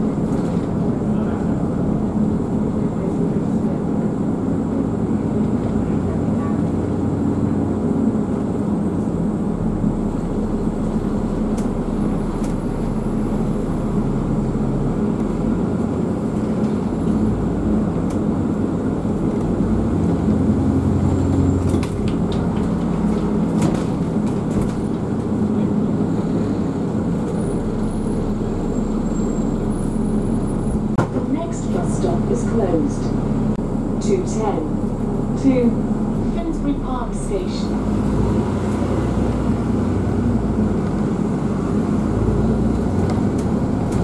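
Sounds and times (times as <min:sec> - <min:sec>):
bus engine humming: 0:00.0 - 0:44.0.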